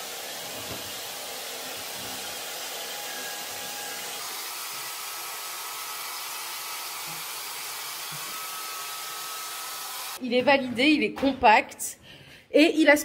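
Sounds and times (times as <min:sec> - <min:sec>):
shop vacuum running: 0:00.0 - 0:10.2.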